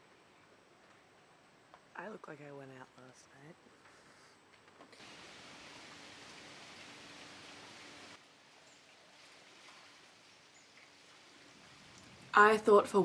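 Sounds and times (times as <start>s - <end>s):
rain falling on pool: 4.9s - 13.0s.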